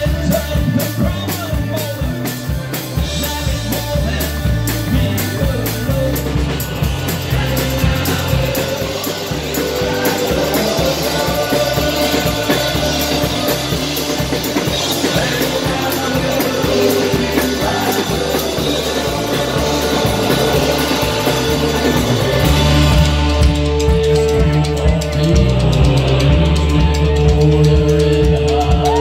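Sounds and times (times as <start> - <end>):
drum kit beat: 0.0 - 29.0
electric guitar: 0.0 - 29.0
voices singing: 0.0 - 29.0.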